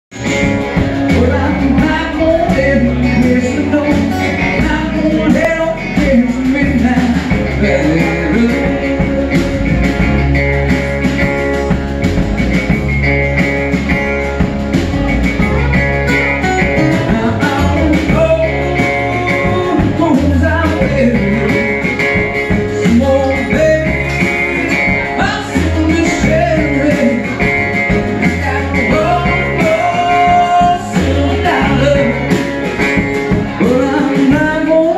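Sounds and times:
man singing: 0.1s - 10.6s, 16.4s - 34.9s
blues-rock band playing: 0.1s - 34.9s.

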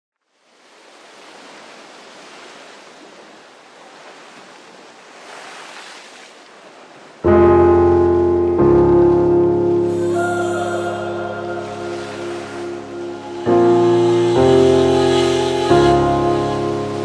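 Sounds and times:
music with keyboard chords: 7.2s - 17.0s.

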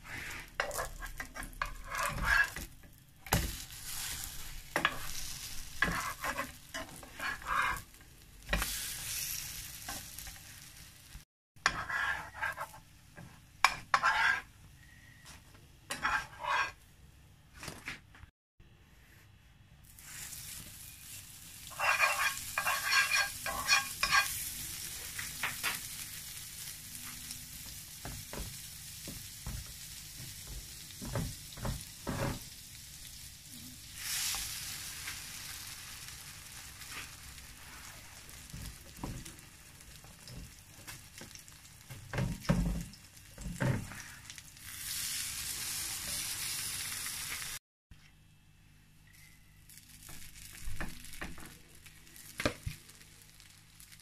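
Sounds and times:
butter sizzling in frying pan: 0.1s - 14.5s, 19.9s - 47.6s, 49.7s - 54.0s
metal spoon clinking on pan: 21.8s - 24.4s.

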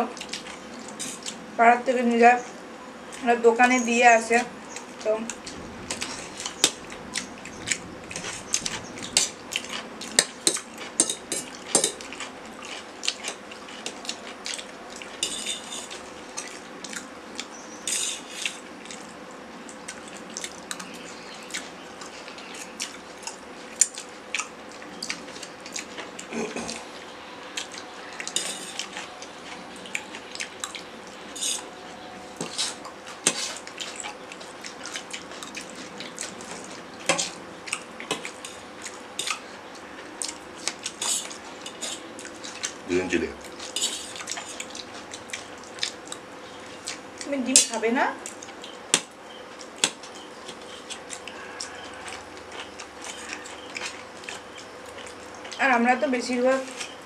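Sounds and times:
forks clinking on metal plates: 10.2s - 12.0s, 15.2s - 16.0s, 28.3s - 28.8s.

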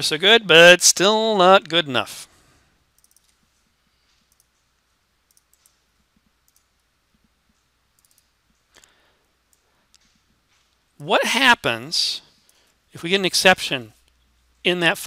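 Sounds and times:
computer mouse clicks: 2.9s - 8.9s.

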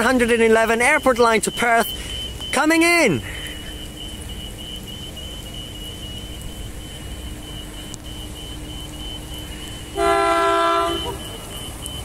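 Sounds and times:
electric train rumbling: 0.0s - 12.0s
train horn: 9.9s - 11.4s.

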